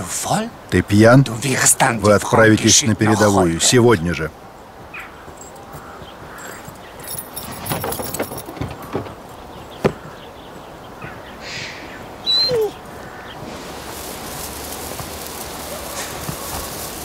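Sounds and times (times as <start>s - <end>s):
boots walking on dirt: 4.4s - 11.3s, 12.8s - 17.0s
light metallic jingling: 4.5s - 10.8s
dog whining: 12.2s - 12.9s.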